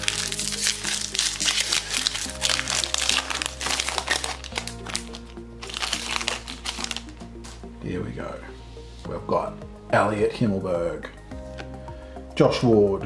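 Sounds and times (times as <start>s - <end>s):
foil wrapper crinkling: 0.0s - 7.2s
background music: 0.0s - 13.0s.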